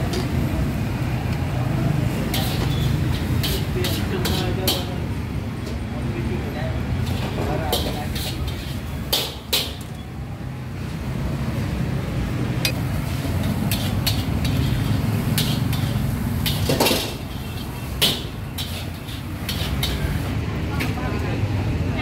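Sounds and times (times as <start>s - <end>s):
passing traffic rumble: 0.0s - 22.0s
dishes and utensils clinking: 2.3s - 5.0s, 7.0s - 10.0s, 12.6s - 20.2s.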